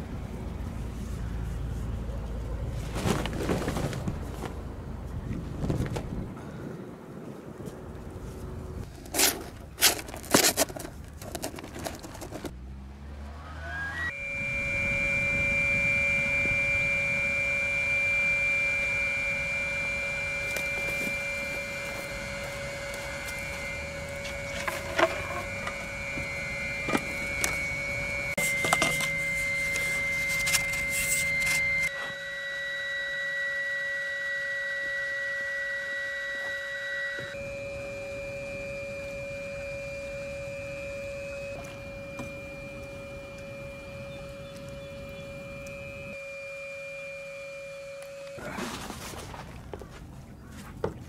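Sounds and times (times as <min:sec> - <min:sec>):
motor whining: 0:12.4 - 0:48.7.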